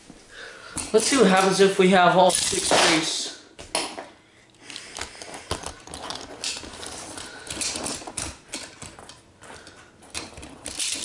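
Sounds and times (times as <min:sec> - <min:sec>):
toy cars clicking and clattering: 0:02.2 - 0:03.2, 0:04.7 - 0:11.0.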